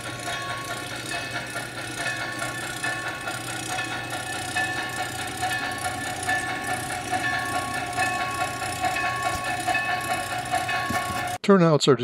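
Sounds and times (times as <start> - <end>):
model train pitched tones: 0.0 - 11.4.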